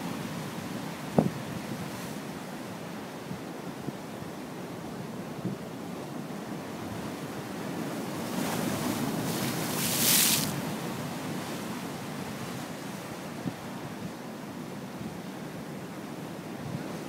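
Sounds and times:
sea waves breaking over rocks: 6.5 - 13.8.

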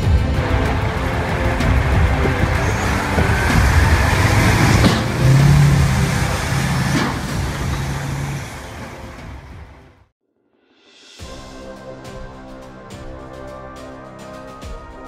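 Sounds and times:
heavy diesel truck engine: 0.0 - 10.0.

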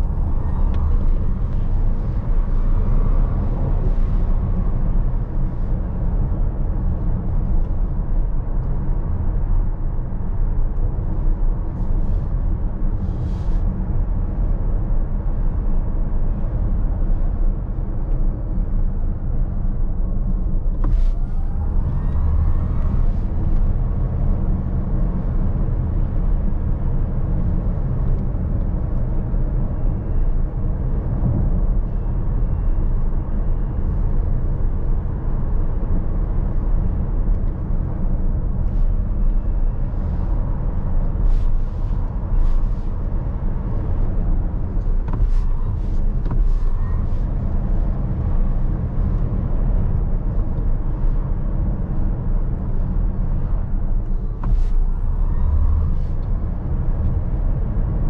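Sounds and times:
tyres rumbling on road: 0.0 - 58.0.

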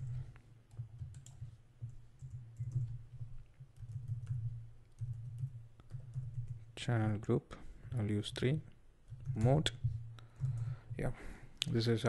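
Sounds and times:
computer keyboard typing: 0.0 - 6.7, 9.1 - 11.0.

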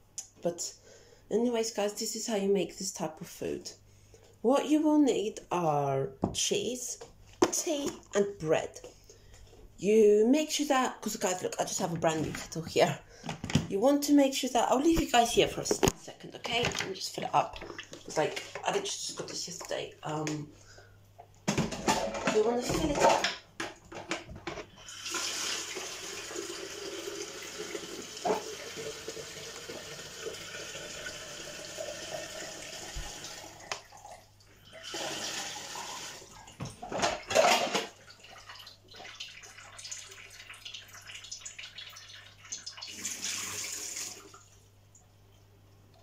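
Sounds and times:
tap water filling kettle: 24.0 - 44.5.

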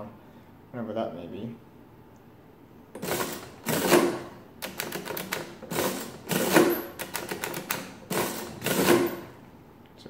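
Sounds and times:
adding machine handle clatter: 3.0 - 9.4.

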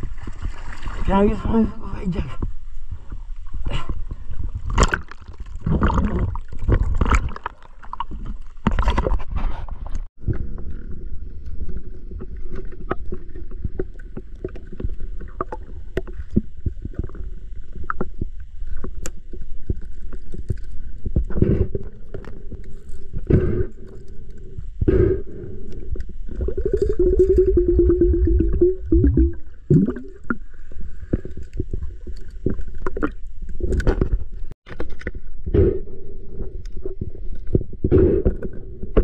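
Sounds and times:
water sloshing and splashing: 0.0 - 2.3, 2.9 - 23.2
steady low rumble: 19.2 - 34.6.

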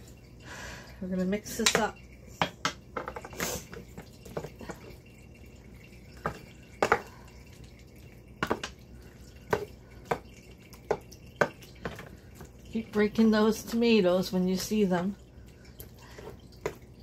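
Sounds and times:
wet squishing of stirred food: 3.4 - 13.8, 14.5 - 17.0.

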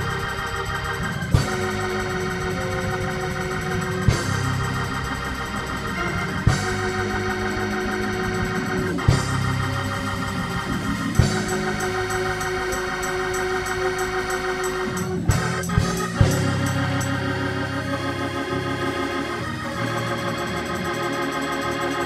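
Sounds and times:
organ playing chords: 0.0 - 22.0.

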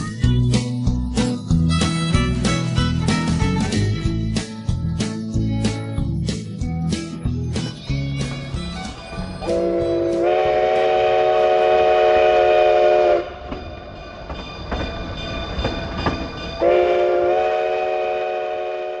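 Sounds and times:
train rumbling and knocking: 0.0 - 19.0
steam locomotive whistle: 9.4 - 13.5, 16.6 - 19.0.

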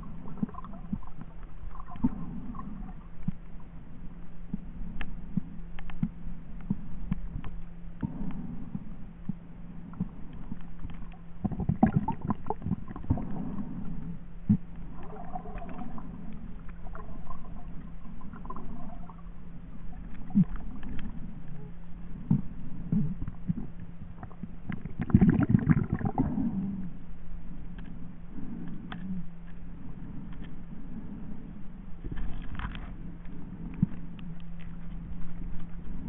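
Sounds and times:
gurgling water: 0.0 - 3.8, 4.4 - 27.1
steady low underwater hum: 0.0 - 36.0.

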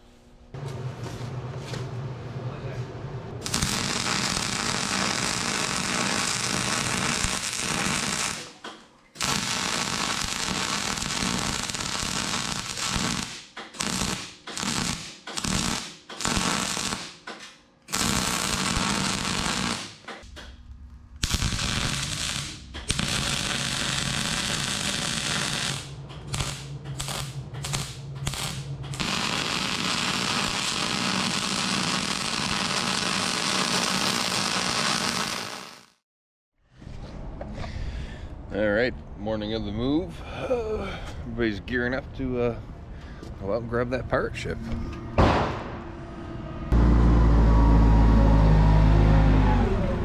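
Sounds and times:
welding arc crackling: 3.4 - 8.6, 9.2 - 17.2, 17.9 - 20.2, 21.2 - 36.0.

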